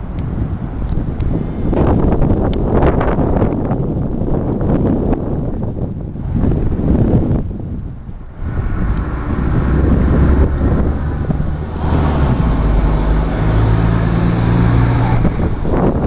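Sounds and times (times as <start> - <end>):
street noise: 0.0 - 16.0
vehicle engine humming: 0.0 - 16.0.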